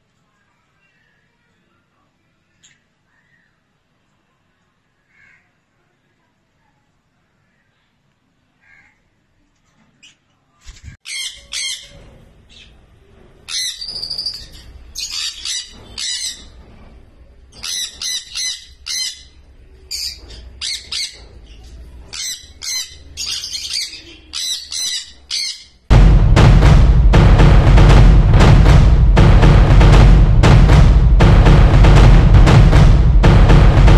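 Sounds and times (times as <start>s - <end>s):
parrots screeching: 11.0s - 12.0s, 13.5s - 16.5s, 22.1s - 25.8s
drum-heavy music: 25.9s - 33.9s.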